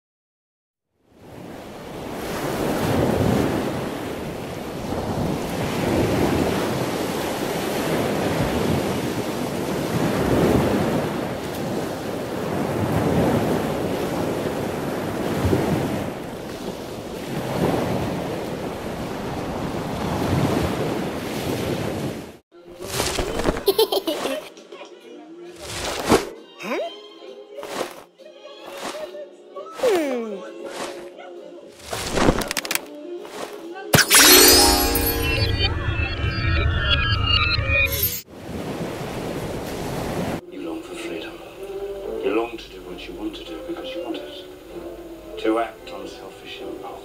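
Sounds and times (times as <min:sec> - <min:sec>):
ocean waves washing in: 0:01.1 - 0:23.4, 0:34.1 - 0:40.4.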